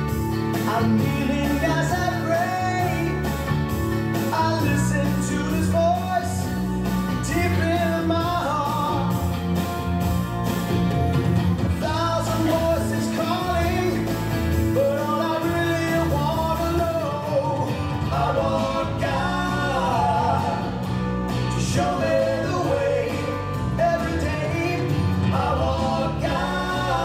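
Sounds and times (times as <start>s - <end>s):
person singing over backing music: 0.6s - 3.2s, 14.7s - 20.9s, 21.5s - 27.0s.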